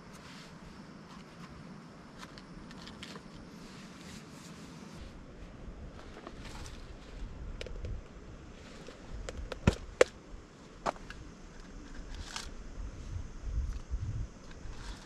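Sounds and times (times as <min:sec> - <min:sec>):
steady low rumble: 0:04.9 - 0:15.0.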